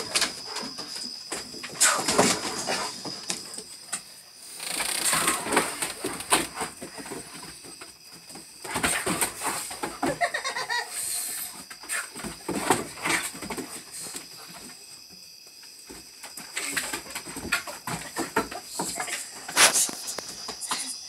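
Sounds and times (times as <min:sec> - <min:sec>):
dog paws thumping on wooden deck: 0:12.2 - 0:15.2, 0:15.8 - 0:20.7.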